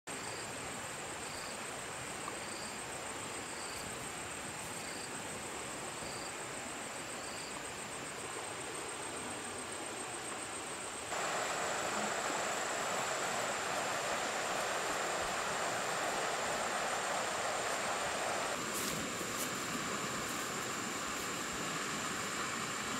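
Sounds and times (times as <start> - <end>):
insect chirp: 0.1 - 22.9
flowing river water: 0.5 - 22.9
high-pitched insect trill: 7.0 - 22.9.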